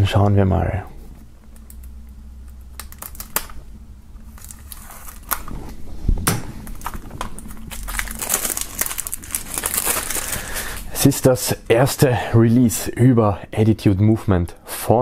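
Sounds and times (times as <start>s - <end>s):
plastic crackles and clicks: 1.4s - 3.6s, 6.6s - 10.4s
knife slicing plastic film: 4.3s - 5.7s.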